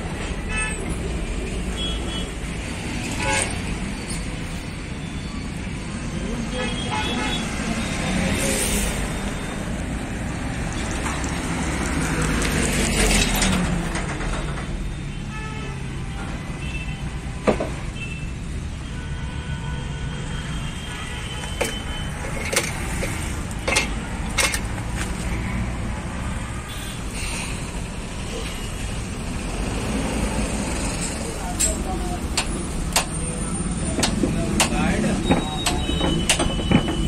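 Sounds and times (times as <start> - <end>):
traffic rumble: 0.0 - 15.2, 20.1 - 37.0
metal parts clinking: 21.6 - 24.7.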